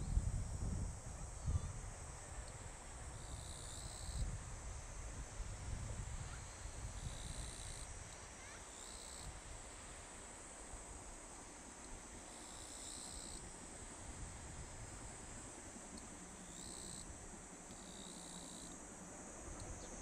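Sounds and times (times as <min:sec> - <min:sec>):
low wind rumble: 0:00.0 - 0:03.1
insects droning: 0:00.0 - 0:20.0.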